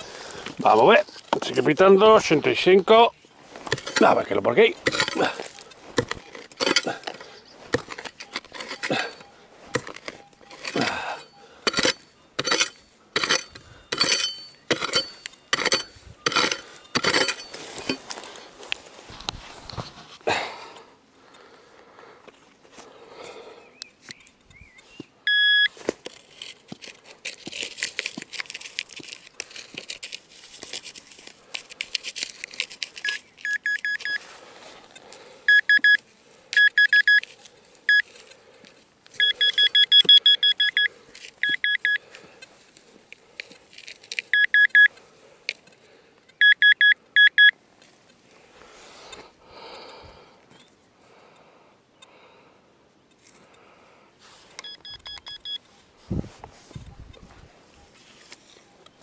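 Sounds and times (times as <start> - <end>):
digging tool scraping soil: 0.0 - 20.2, 25.6 - 35.4
pinpointer pulsing beeps: 8.2 - 11.5, 25.2 - 25.7, 33.0 - 34.2, 35.5 - 36.0, 36.6 - 37.2, 37.9 - 38.1, 39.2 - 42.0, 44.3 - 44.9, 46.4 - 47.6, 54.6 - 55.6.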